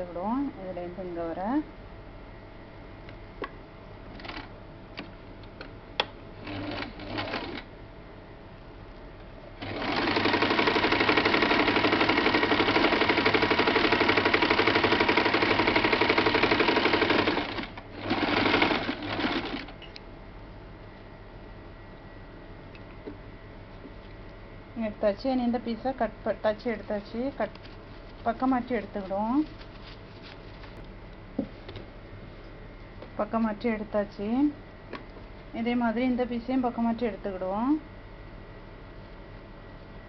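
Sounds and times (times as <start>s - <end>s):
sewing machine stitching: 6.4s - 7.7s, 9.6s - 19.7s.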